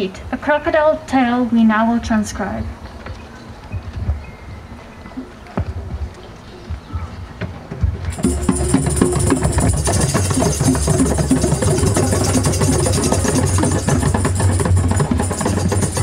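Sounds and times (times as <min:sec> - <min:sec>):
rhythmic drum and percussion music: 0:03.9 - 0:16.0.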